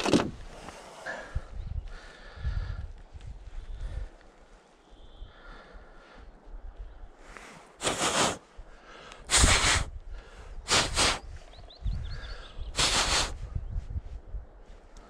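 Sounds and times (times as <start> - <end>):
person breathing hard: 0.5 - 4.3, 5.1 - 11.3, 12.0 - 13.6.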